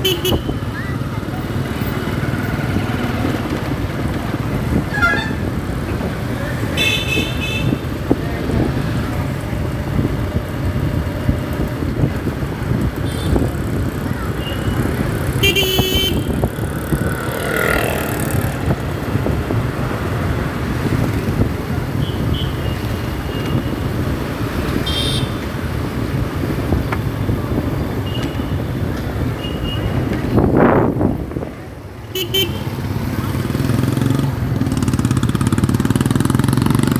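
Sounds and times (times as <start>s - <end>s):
wind and road noise: 0.0s - 36.9s
vehicle horn toots: 4.9s - 5.4s, 15.4s - 16.3s.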